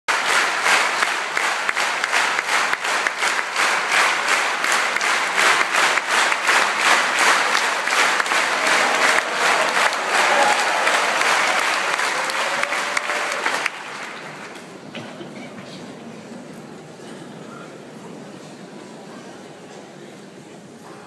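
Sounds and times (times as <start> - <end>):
audience applauding: 0.1 - 14.8.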